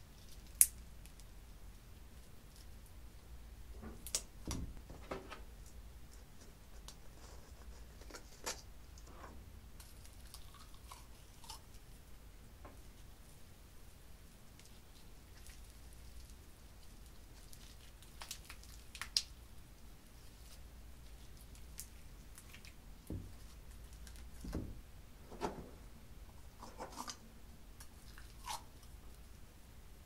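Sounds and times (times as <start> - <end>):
slime crackling and squishing: 14.5 - 24.6.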